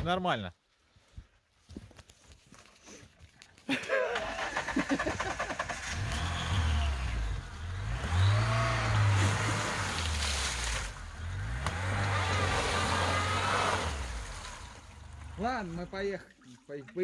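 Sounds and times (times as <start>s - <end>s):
wheels splashing water and mud: 3.6s - 17.0s
car engine revving: 4.5s - 15.9s.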